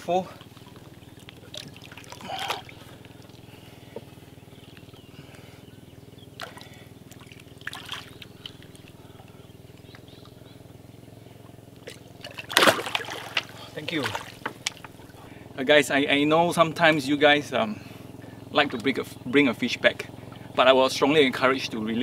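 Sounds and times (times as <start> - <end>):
water sloshing and splashing: 0.0 - 5.1, 6.2 - 10.4, 11.8 - 15.3
low hum: 0.0 - 22.0.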